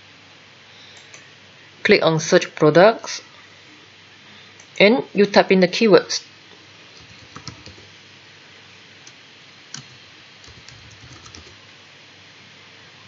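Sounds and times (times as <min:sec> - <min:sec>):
computer keyboard typing: 0:07.0 - 0:07.9, 0:09.7 - 0:11.6.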